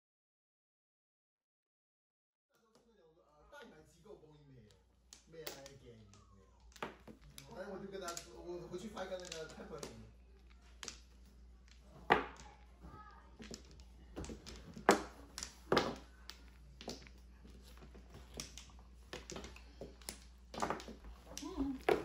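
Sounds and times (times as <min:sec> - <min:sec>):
mahjong tiles clacking on table: 0:04.7 - 0:22.0.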